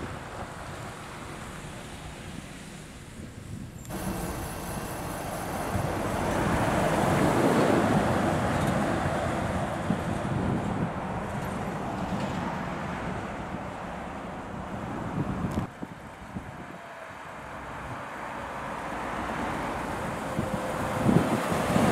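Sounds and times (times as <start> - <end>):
lorry driving past: 3.9 - 15.1.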